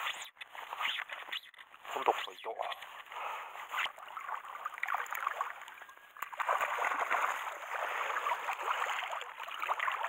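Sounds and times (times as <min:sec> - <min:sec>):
fish splashing in shallow water: 0:03.6 - 0:10.0.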